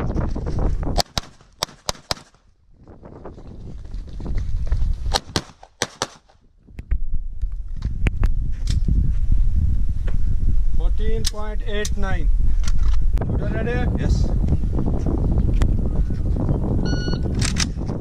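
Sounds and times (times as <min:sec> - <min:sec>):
handgun shots: 0:01.0 - 0:02.4, 0:05.1 - 0:06.4.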